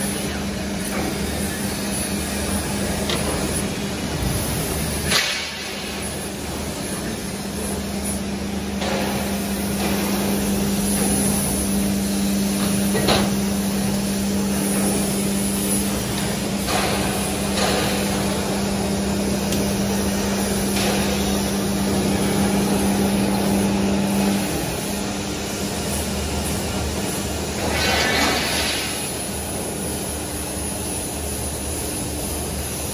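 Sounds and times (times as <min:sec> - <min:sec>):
workshop noise: 0:00.0 - 0:32.9
rolling machine motor hum: 0:05.9 - 0:27.8.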